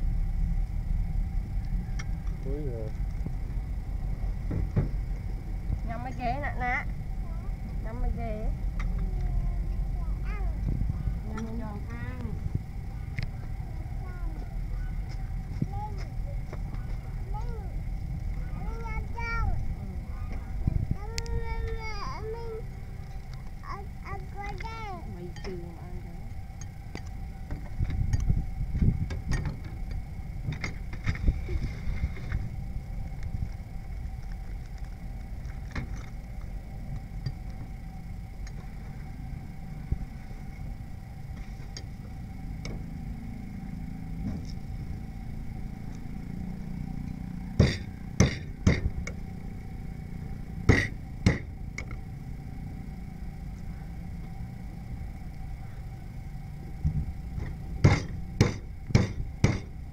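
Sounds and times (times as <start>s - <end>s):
low rumble: 0.0s - 59.9s
loud sharp knocks: 47.6s - 48.9s, 50.7s - 51.5s, 57.8s - 59.8s.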